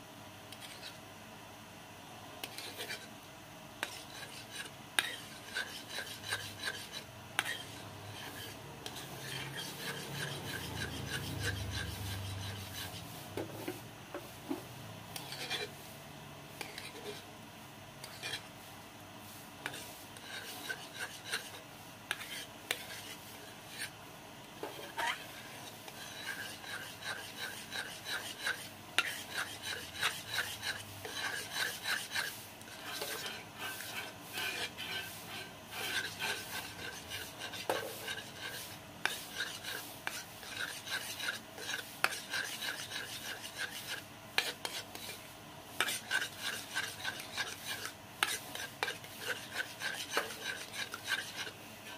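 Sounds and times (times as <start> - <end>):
metal spoon scraping a pot: 3.8 - 13.0, 15.1 - 15.8, 16.6 - 17.2, 18.0 - 18.5, 19.6 - 23.9, 24.6 - 45.2, 45.8 - 51.9.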